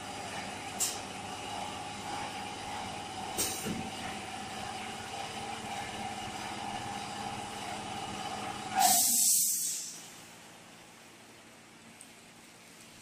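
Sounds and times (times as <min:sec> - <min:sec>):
machine humming and whining: 0:00.0 - 0:09.2
air hiss: 0:08.8 - 0:10.1.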